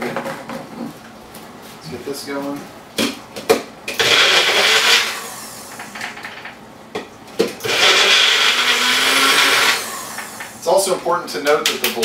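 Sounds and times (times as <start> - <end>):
blender clicks: 4.0 - 5.2, 7.6 - 10.5
blender running: 4.0 - 6.0, 7.6 - 10.6.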